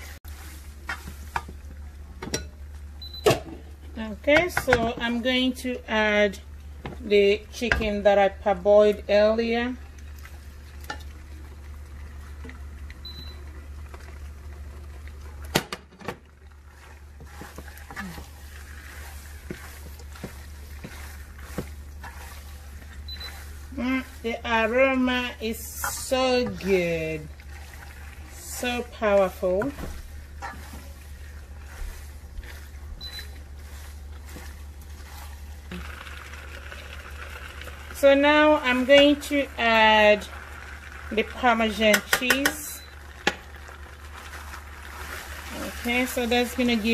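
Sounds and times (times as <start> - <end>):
spatula stirring pasta in pan: 0.0 - 3.0, 4.1 - 15.5, 16.2 - 46.9.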